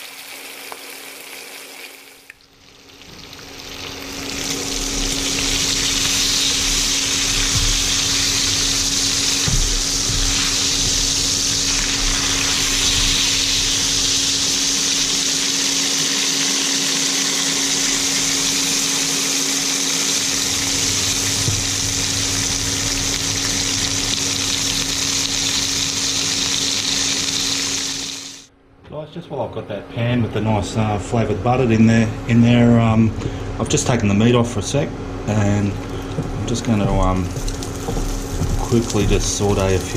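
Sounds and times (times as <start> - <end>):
steady low hum: 2.4 - 39.9
steaks sizzling in a pan: 2.8 - 28.4.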